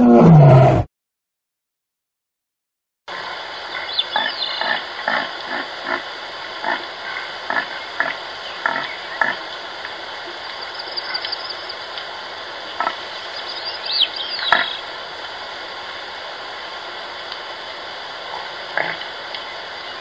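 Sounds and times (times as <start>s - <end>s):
faint birdsong: 3.3s - 5.2s, 7.0s - 12.0s, 12.6s - 14.9s.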